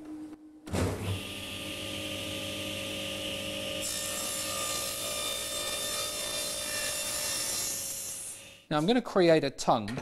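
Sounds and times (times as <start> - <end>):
table saw running: 1.0 - 8.3
saw blade cutting wood: 3.8 - 8.6.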